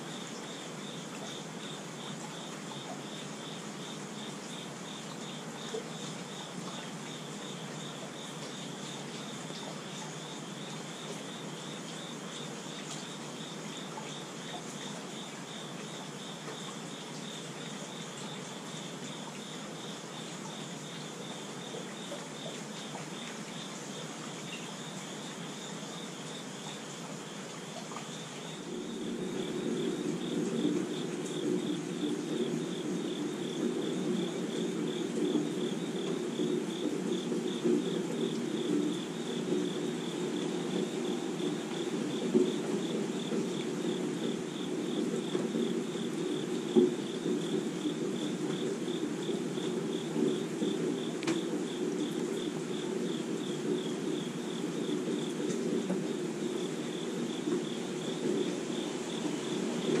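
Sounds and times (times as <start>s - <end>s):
insects chirping: 0.0s - 60.0s
rain falling: 0.0s - 60.0s.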